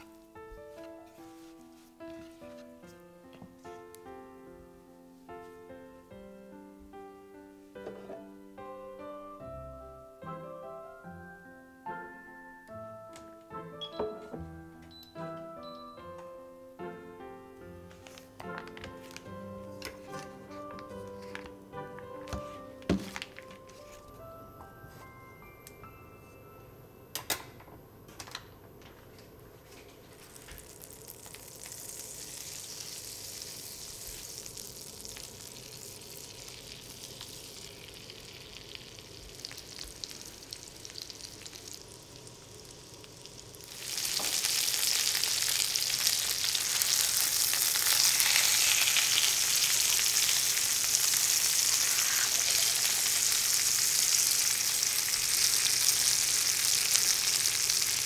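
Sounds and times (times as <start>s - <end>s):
chicken sizzling in frying pan: 30.2s - 58.0s.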